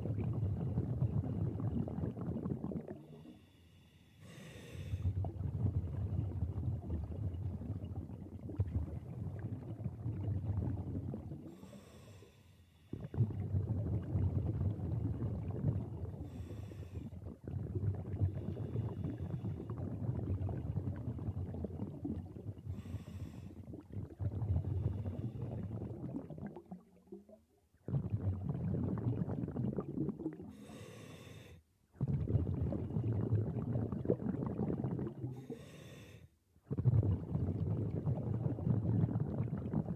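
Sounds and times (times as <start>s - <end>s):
gurgling exhaled bubbles: 0.0s - 3.4s, 4.4s - 12.0s, 12.9s - 31.1s, 32.0s - 35.8s, 36.6s - 39.9s
hissing regulator inhalations: 3.1s - 5.1s, 11.5s - 13.1s, 30.5s - 31.6s, 35.4s - 36.3s.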